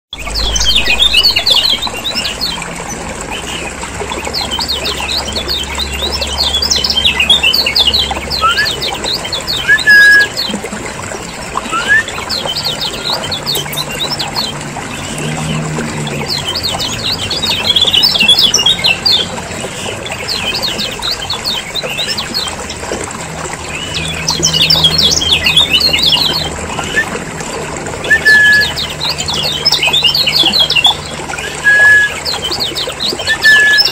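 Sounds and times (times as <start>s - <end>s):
low hum: 0.2s - 10.3s
birds chattering and twittering: 0.2s - 33.9s
short clear bird whistles: 11.7s - 12.2s.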